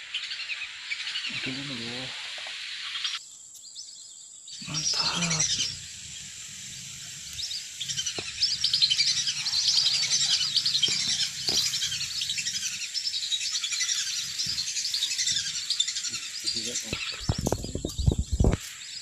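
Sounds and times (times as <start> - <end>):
ducks whistling calls: 4.6 - 18.6.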